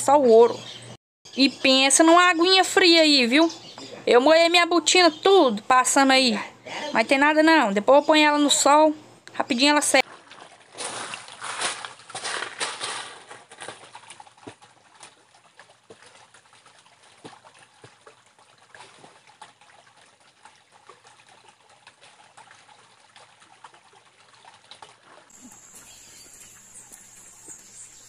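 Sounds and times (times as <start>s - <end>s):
boots splashing through water: 10.0s - 25.4s
stream trickling over rocks: 10.1s - 28.0s.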